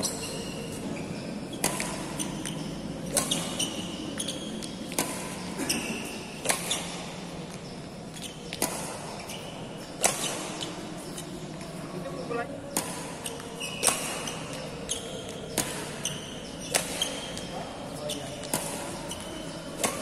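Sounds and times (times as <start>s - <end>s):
rackets striking shuttlecocks: 0.0s - 20.0s
shoe squeaks: 0.0s - 20.0s.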